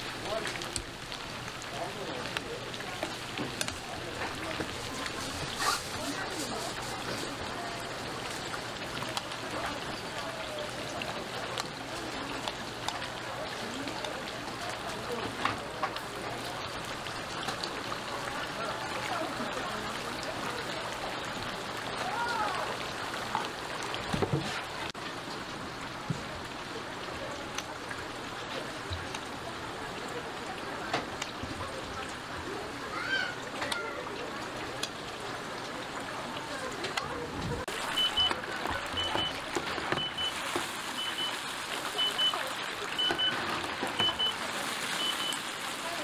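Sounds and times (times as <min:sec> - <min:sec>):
chicken sizzling in hot oil: 0:00.0 - 0:22.7, 0:32.5 - 0:34.0, 0:37.6 - 0:46.0
electronic alarm double beeps: 0:38.0 - 0:38.4, 0:39.0 - 0:39.4, 0:40.0 - 0:40.4, 0:41.0 - 0:41.4, 0:43.0 - 0:43.4, 0:44.0 - 0:44.4, 0:45.0 - 0:45.4.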